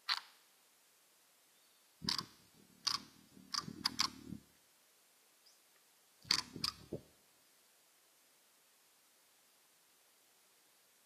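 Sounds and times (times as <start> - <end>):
hummingbird clicking chips: 2.0 - 4.2, 6.3 - 6.9
low rumble of wings: 2.0 - 4.6, 6.2 - 7.2.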